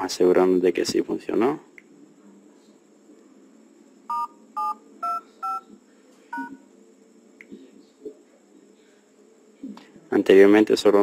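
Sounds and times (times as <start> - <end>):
keypad touch-tone beeps: 4.1 - 5.7.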